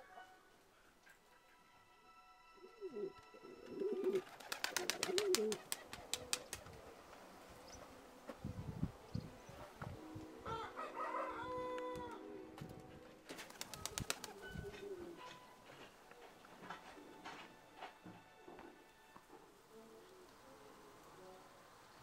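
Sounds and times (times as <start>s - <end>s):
pigeons cooing: 2.7s - 8.0s, 13.1s - 15.2s.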